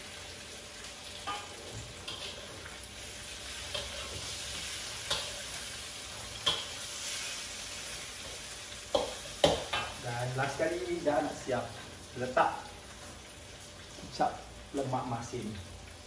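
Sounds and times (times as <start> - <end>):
food sizzling in oil: 0.0 - 16.0
metal spatula scraping wok: 1.2 - 10.0.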